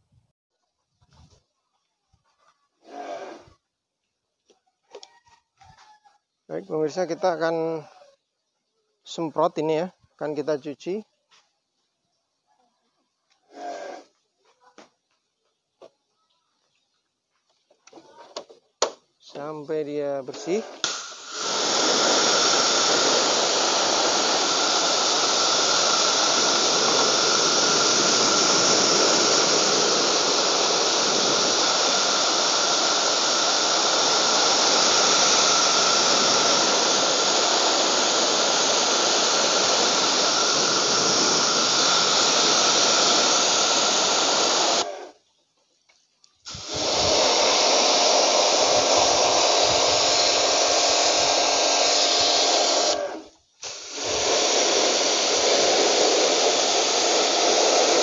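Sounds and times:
pressure washer spraying: 0:20.2 - 0:45.1, 0:46.5 - 0:58.0.

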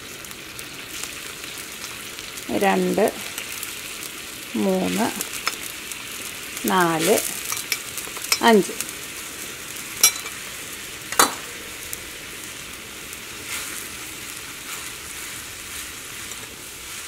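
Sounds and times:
water boiling with a hiss: 0:00.0 - 0:17.0
spatula stirring in pan: 0:13.1 - 0:17.0.

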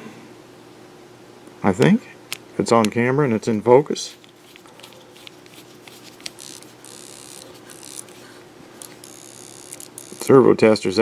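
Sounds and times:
screwdriver scraping plastic: 0:04.2 - 0:10.3.

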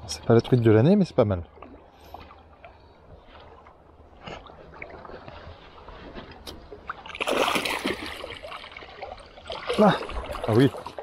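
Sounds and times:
small water sounds: 0:00.0 - 0:11.0
fish splashing: 0:06.8 - 0:11.0.

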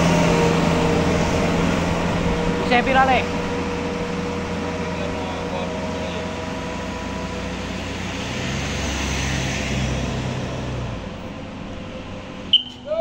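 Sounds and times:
car engine and tyres passing: 0:00.0 - 0:13.0
distant truck labouring uphill: 0:00.0 - 0:13.0.

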